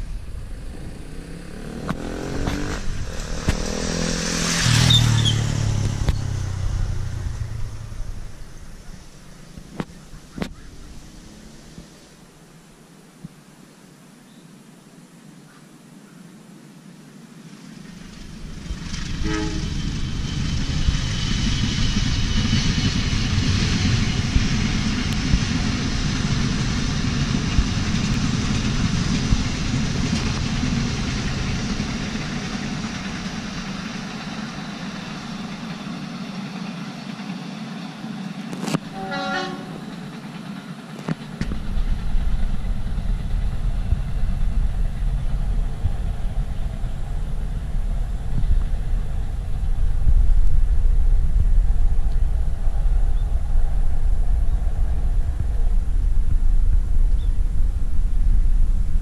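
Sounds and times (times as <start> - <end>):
train rumbling past: 0.0 - 12.7, 17.5 - 59.0
low engine rumble: 0.0 - 13.3, 17.7 - 59.0
locomotive horn: 19.2 - 19.8, 38.8 - 40.0.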